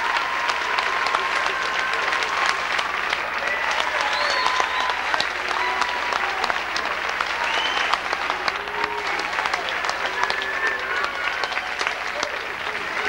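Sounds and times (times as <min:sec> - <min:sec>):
audience applauding: 0:00.0 - 0:13.0
cheers and calls: 0:00.0 - 0:13.0.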